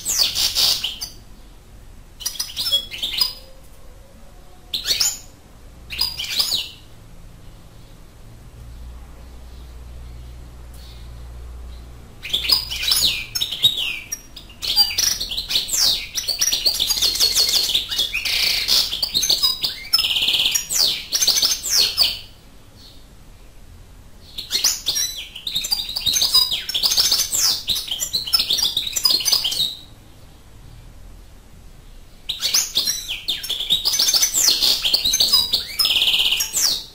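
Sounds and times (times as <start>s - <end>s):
finch twittering and trilling: 0.0s - 1.2s, 2.2s - 3.6s, 4.7s - 6.9s, 12.2s - 23.0s, 24.2s - 29.9s, 32.3s - 36.9s.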